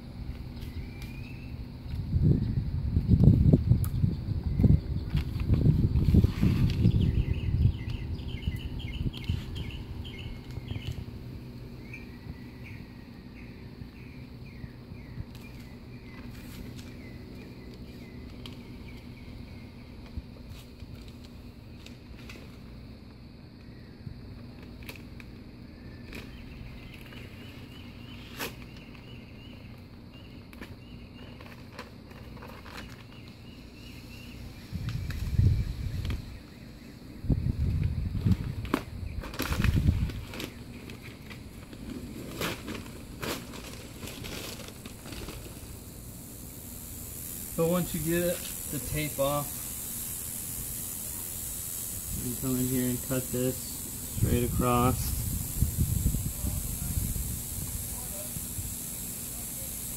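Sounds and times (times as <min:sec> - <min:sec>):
songbird chirping: 0:00.1 - 0:02.8, 0:06.2 - 0:20.4, 0:25.6 - 0:31.6, 0:32.7 - 0:39.3.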